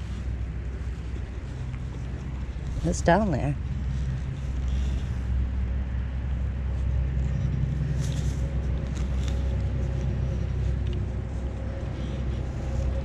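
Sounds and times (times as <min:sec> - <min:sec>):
faint hum: 0:00.0 - 0:13.0
low rumble: 0:00.0 - 0:13.0
probe scraping against soil: 0:00.0 - 0:13.0.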